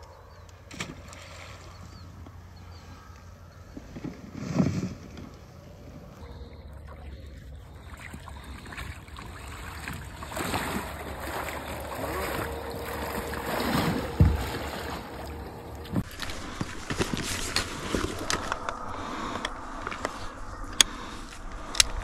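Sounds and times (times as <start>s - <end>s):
splashing through shallow water: 6.2s - 20.3s
low thump: 13.8s - 15.0s.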